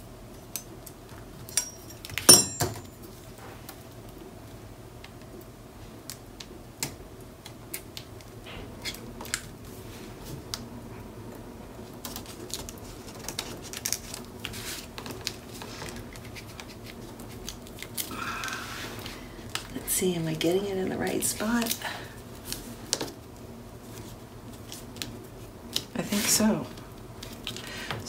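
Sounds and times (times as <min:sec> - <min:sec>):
paper clicks rustles and scrapes: 0:11.9 - 0:18.0.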